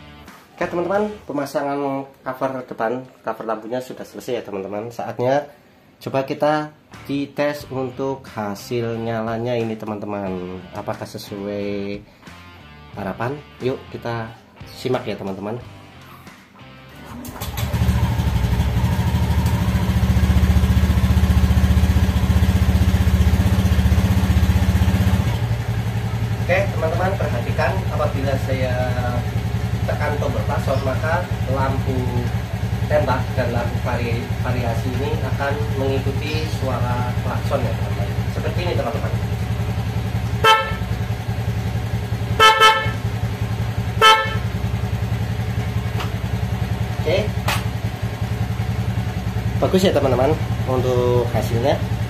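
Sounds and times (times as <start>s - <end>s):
scooter engine idling: 17.2s - 52.0s
scooter horn beeps: 40.2s - 41.3s, 42.2s - 45.2s.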